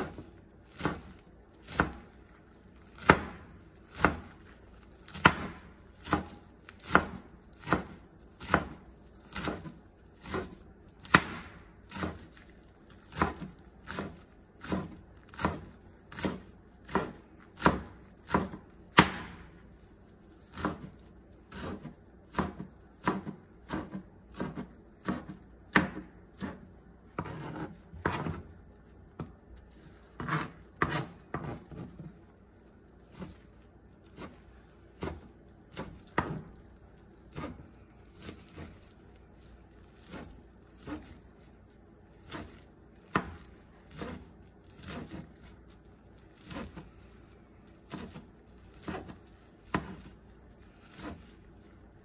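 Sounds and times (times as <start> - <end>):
knife chopping on cutting board: 0.0 - 19.6, 20.4 - 28.5, 30.2 - 32.2, 34.0 - 36.6, 37.3 - 38.8, 40.0 - 41.2, 42.2 - 45.5, 46.4 - 46.9, 47.6 - 50.2, 50.8 - 51.4
knife scraping board: 5.0 - 11.2, 20.5 - 26.6, 27.2 - 28.5, 30.2 - 32.1, 37.3 - 38.8, 42.3 - 45.5, 46.4 - 47.0, 47.9 - 50.2, 50.8 - 51.5.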